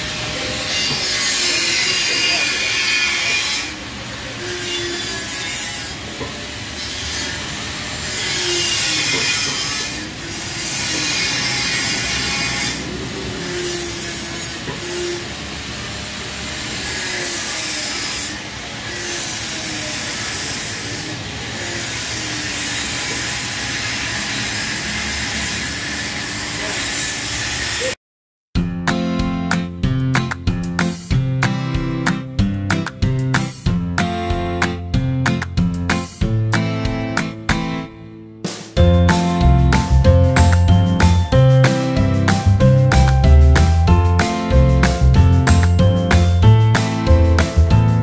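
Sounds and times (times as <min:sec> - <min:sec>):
sandpaper rubbing on metal: 0:06.8 - 0:15.3, 0:16.7 - 0:28.0.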